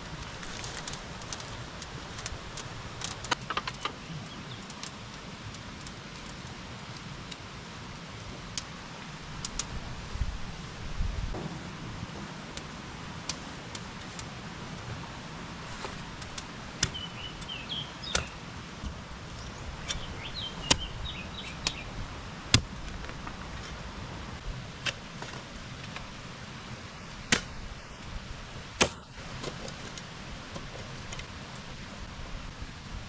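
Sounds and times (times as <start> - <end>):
sharp clicks and knocks: 3.0 - 4.0.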